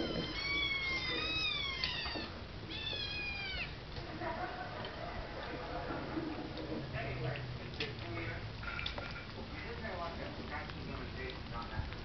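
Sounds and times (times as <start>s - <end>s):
kittens meowing: 0.0s - 3.8s.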